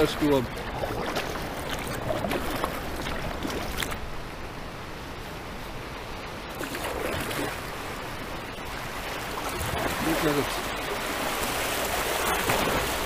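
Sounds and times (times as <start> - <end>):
river water rushing and splashing: 0.0 - 13.0
sharp splash: 11.4 - 13.0.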